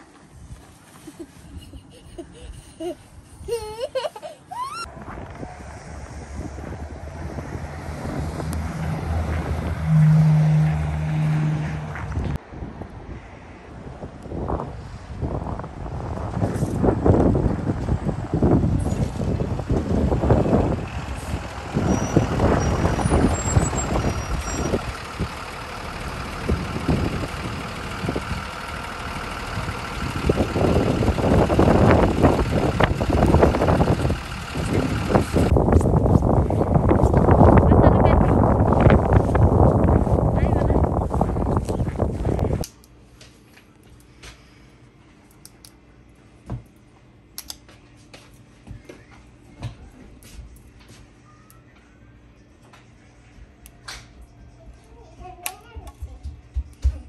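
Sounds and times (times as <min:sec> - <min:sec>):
wind on microphone: 0:04.8 - 0:24.9, 0:29.6 - 0:42.6
bus engine idling: 0:15.2 - 0:42.6.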